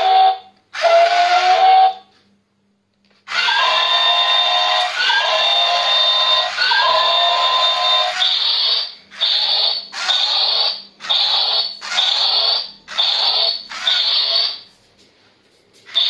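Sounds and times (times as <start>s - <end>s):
toy robot motor whirring: 3.3s - 14.6s.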